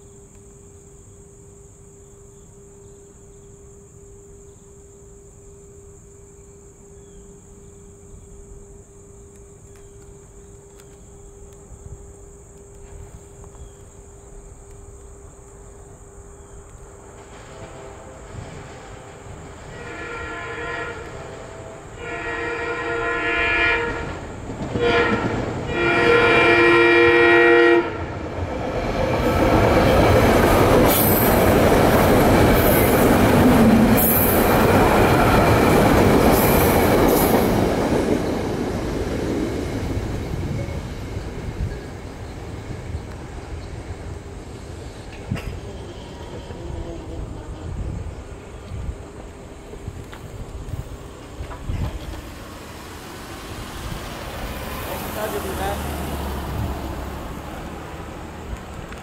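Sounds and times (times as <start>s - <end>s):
train horn blasts: 17.2s - 28.2s.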